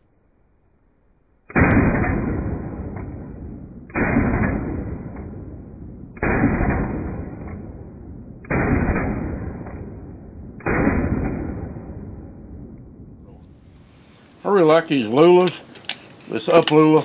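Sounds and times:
slowed gunshots: 0:01.4 - 0:14.0.

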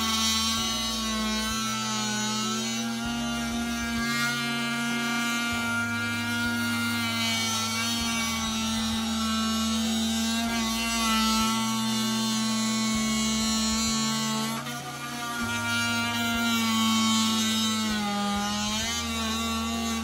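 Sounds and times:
background music with bass line: 0:00.0 - 0:20.0
oscillating multi-tool cutting wood: 0:00.0 - 0:20.0.

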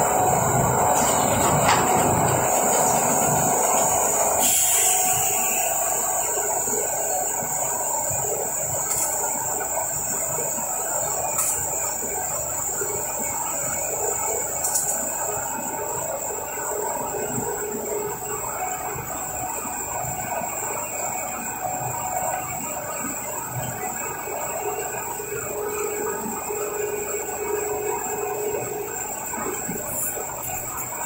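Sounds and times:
industrial drone: 0:00.0 - 0:31.0
high-pitched hiss: 0:03.9 - 0:13.0.

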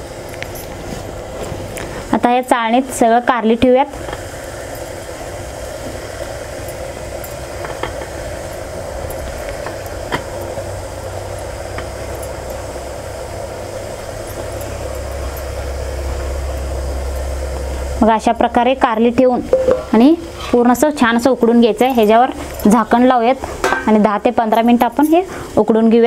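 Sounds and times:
water boiling in a pot: 0:00.0 - 0:26.0.

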